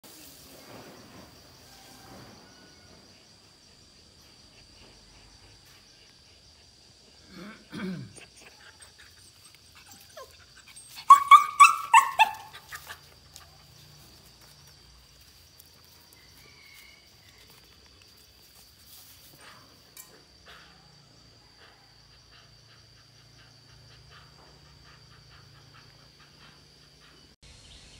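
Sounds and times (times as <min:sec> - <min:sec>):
dog yelping: 0:08.4 - 0:13.2.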